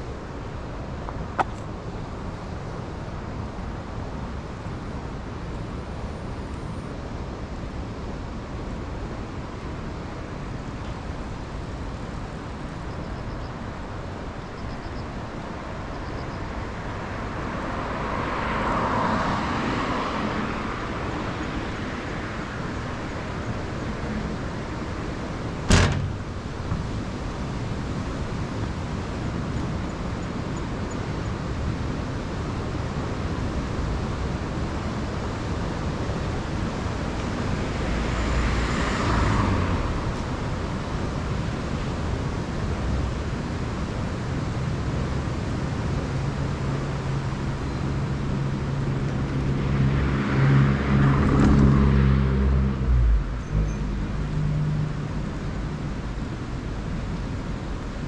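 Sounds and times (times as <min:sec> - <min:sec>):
road noise: 0:00.0 - 0:58.0
heavy vehicle engine drone: 0:21.9 - 0:28.6, 0:32.0 - 0:58.0
vehicle passing: 0:37.6 - 0:40.2, 0:46.4 - 0:56.8.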